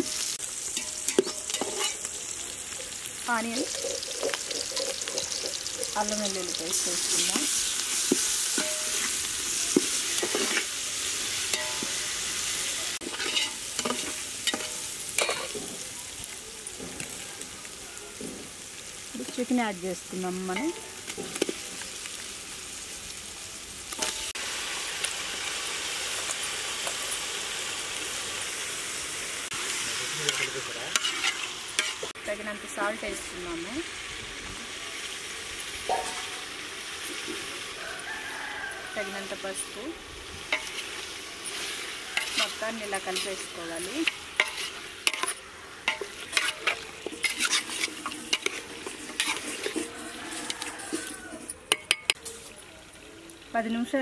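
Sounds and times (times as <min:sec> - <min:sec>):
chicken sizzling in hot oil: 0:00.0 - 0:54.0
spoon scraping metal pot: 0:00.8 - 0:02.0, 0:03.6 - 0:06.2, 0:13.0 - 0:15.6, 0:41.5 - 0:52.2.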